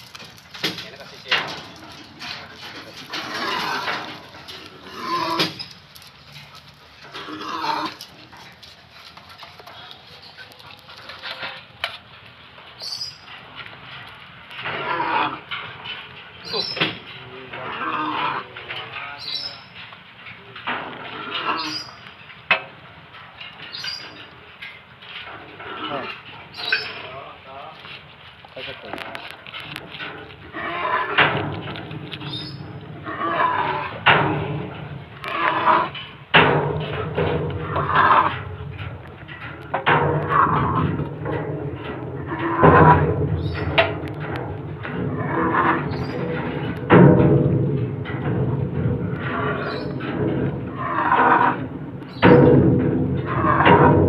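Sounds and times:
sharp knocks: 0:36.3 - 0:54.0.

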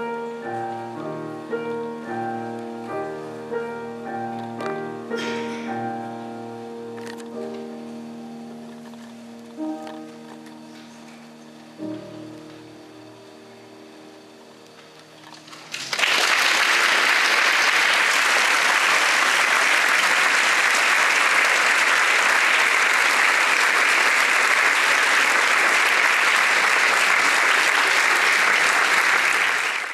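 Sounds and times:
quiet music: 0:00.0 - 0:15.8
audience applauding: 0:15.5 - 0:29.9.

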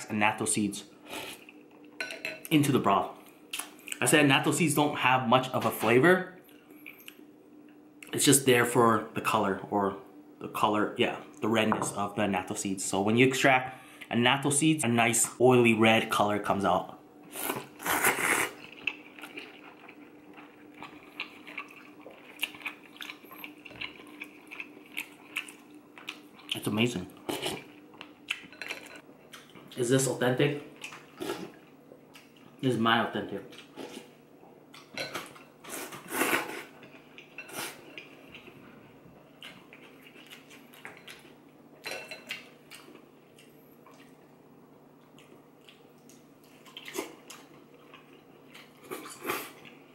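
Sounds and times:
faint steady hum: 0:00.0 - 0:49.9
slurping noodles: 0:17.3 - 0:18.6.

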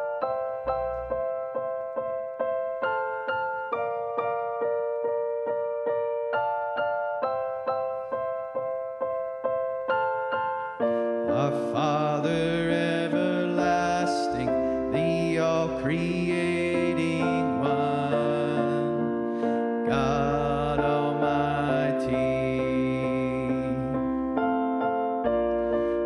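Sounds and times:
keyboard repeated notes: 0:00.0 - 0:26.0
band playing with bass: 0:00.6 - 0:01.4.

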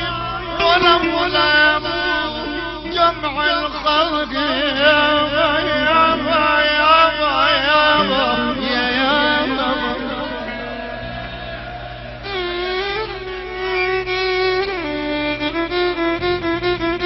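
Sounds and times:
steady music accompaniment: 0:00.0 - 0:17.0
wavering ornamented melody: 0:04.8 - 0:12.5.

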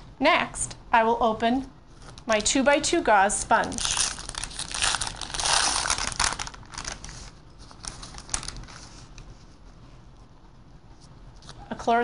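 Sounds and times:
packet crinkling: 0:03.6 - 0:09.2.

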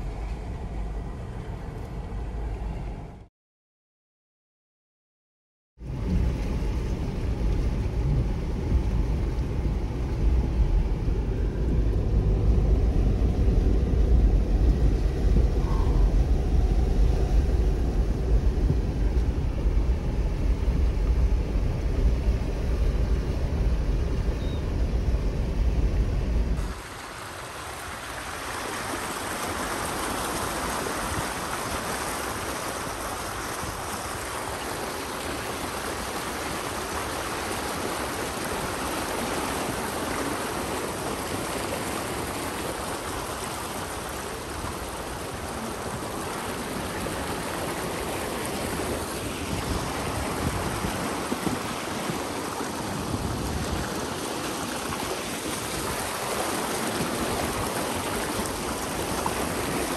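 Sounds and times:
low rumble: 0:05.8 - 0:26.6
floodwater rushing and splashing: 0:05.8 - 0:59.9.

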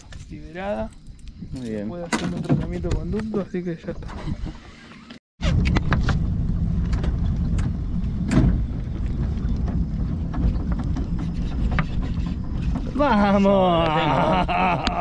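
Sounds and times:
fishing boat engine rumble: 0:05.9 - 0:15.0.

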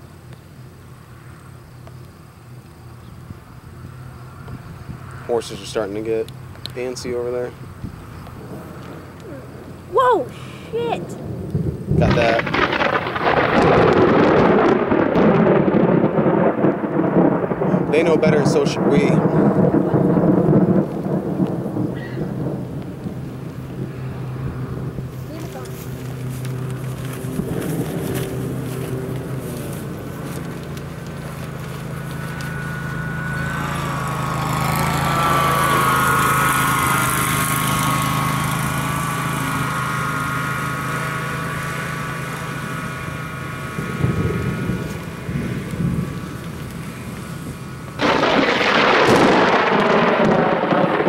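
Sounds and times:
steady low hum: 0:00.0 - 0:48.8
heavy rain hissing: 0:05.2 - 0:51.0
thunder rumbling: 0:11.0 - 0:51.0.

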